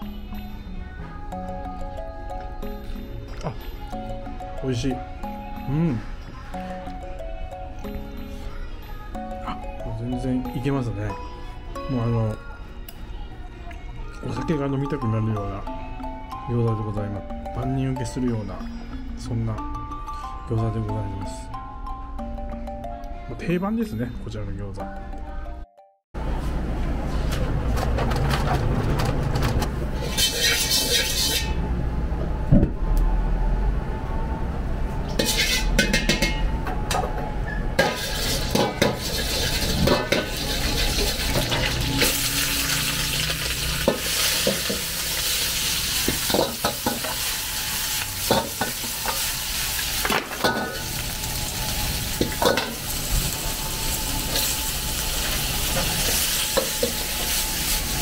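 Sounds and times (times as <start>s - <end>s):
metal ladle scraping a wok: 29.9s - 31.6s, 35.1s - 36.4s, 37.8s - 53.5s
vegetables sizzling in a wok: 30.0s - 31.6s, 35.2s - 35.8s, 37.8s - 58.0s.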